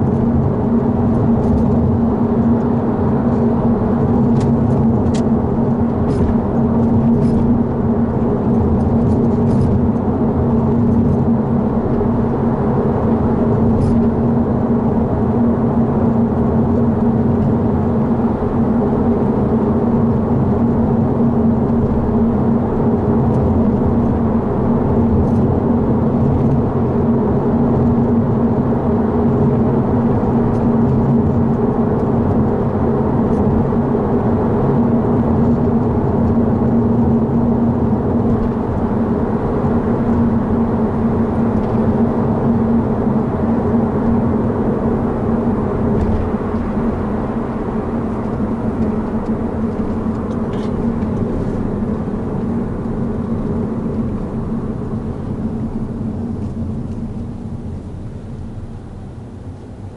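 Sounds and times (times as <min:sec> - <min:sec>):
engine and road noise drone: 0:00.0 - 0:59.9.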